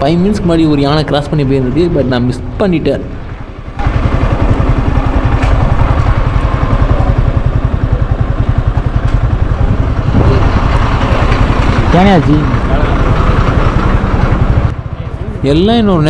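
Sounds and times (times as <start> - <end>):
motorcycle engine running: 3.8 - 16.0.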